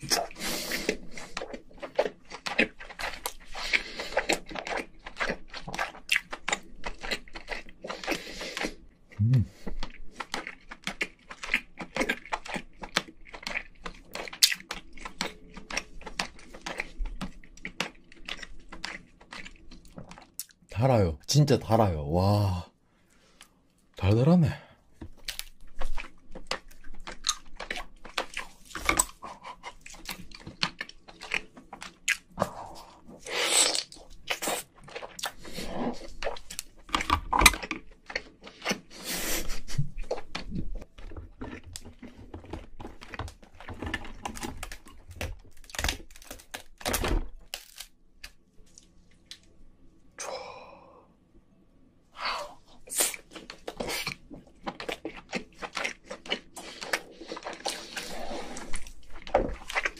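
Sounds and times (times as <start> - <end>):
person chewing: 0.0 - 20.7, 24.9 - 49.6, 52.2 - 59.9
crab shell cracking: 41.2 - 48.4.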